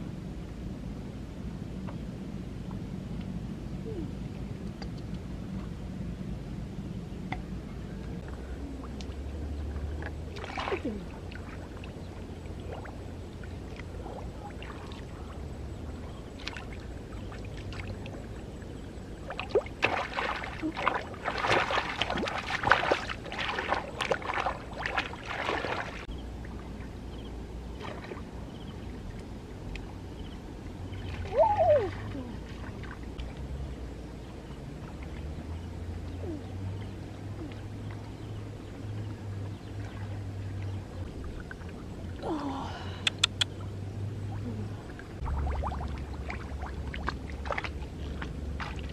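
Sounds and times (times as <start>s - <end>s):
shallow water splashing: 8.2s - 26.9s, 27.7s - 29.9s, 37.5s - 48.9s.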